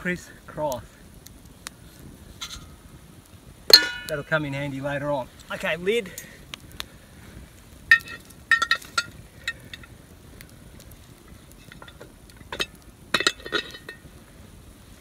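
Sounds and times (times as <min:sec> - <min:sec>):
metal pot lid clinking: 0:03.7 - 0:04.1, 0:12.6 - 0:14.0.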